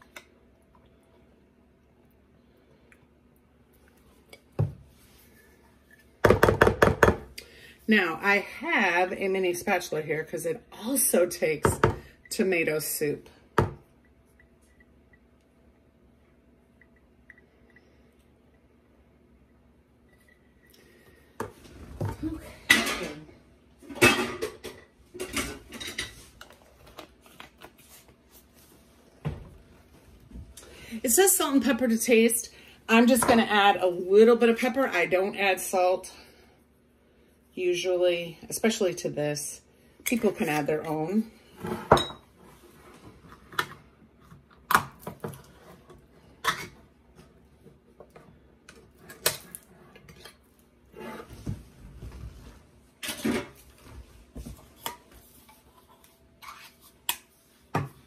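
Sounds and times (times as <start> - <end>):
kitchen items knocking on stone counter: 6.2 - 7.3.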